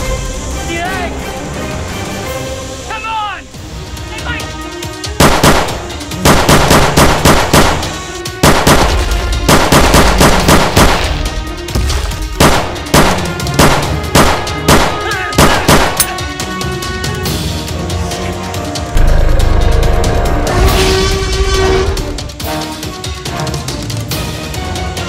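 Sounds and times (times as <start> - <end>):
rapid gunfire: 5.1 - 16.2.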